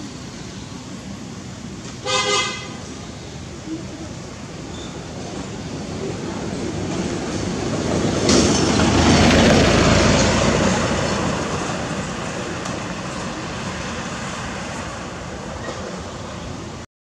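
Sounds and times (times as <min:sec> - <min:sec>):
loud rushing noise: 0:04.2 - 0:16.8.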